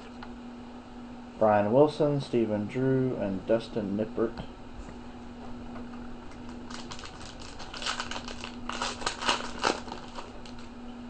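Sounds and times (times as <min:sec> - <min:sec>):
wrapper being torn and crinkled: 0:06.4 - 0:10.7.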